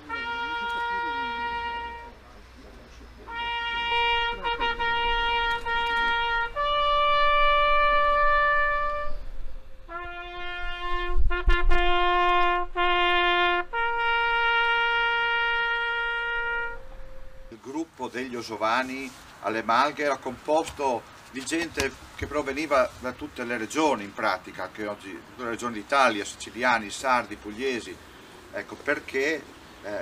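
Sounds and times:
trumpet playing long notes: 0.0s - 2.3s, 3.3s - 17.6s.

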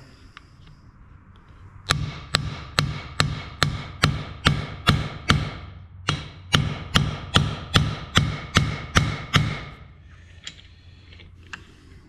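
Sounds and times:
hammer striking metal: 1.9s - 10.0s.

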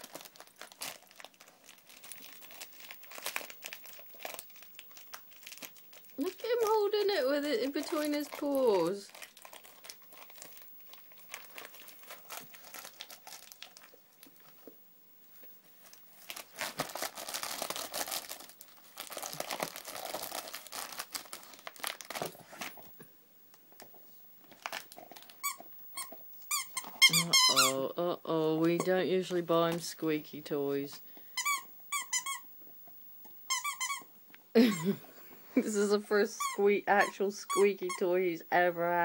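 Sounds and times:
dog tearing plastic packaging: 0.0s - 14.6s, 15.9s - 22.8s, 24.5s - 25.7s
squeaky toy squeaking: 25.4s - 27.7s, 31.4s - 32.5s, 33.5s - 34.1s, 36.4s - 38.0s.

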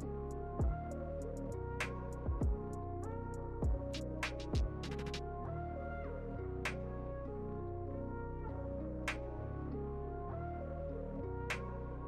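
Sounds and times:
hip-hop beat: 1.8s - 2.6s, 3.6s - 5.2s.

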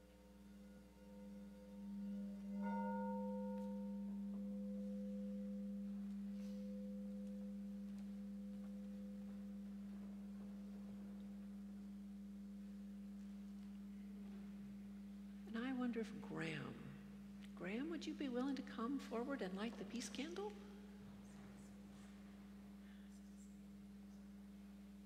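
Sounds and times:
singing bowl ringing: 0.0s - 15.4s.

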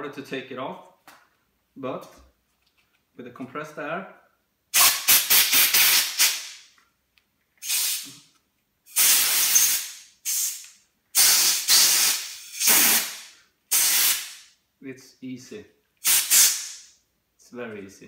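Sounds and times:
air blow gun hissing blasts: 4.8s - 6.6s, 7.6s - 8.2s, 8.9s - 10.6s, 11.2s - 14.5s, 16.0s - 16.8s.

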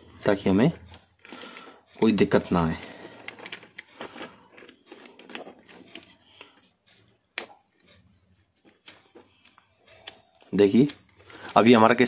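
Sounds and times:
plastic parts rustling: 2.3s - 7.0s, 8.6s - 12.0s.

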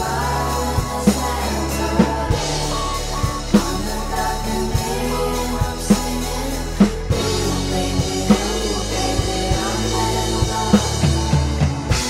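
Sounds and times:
drum kit playing: 0.0s - 12.0s
slow rock song: 0.0s - 12.0s.

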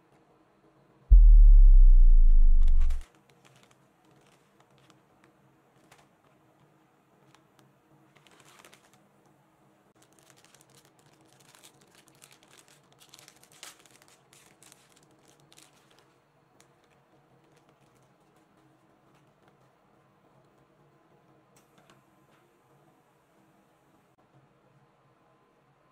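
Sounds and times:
plastic packet crinkling and tearing: 10.0s - 16.2s.

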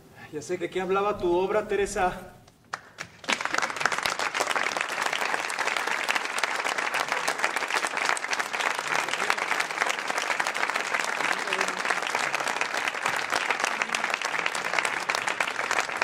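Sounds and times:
audience applauding: 2.7s - 16.0s.

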